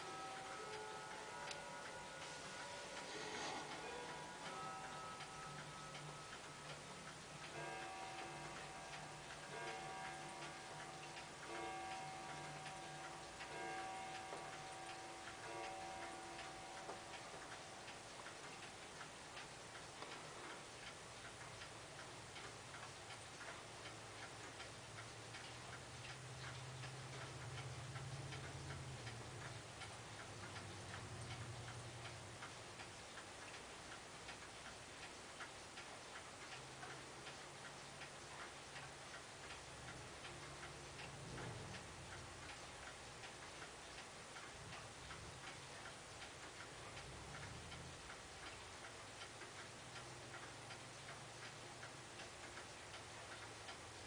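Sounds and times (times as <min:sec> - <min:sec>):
clock ticking: 0:00.0 - 0:54.0.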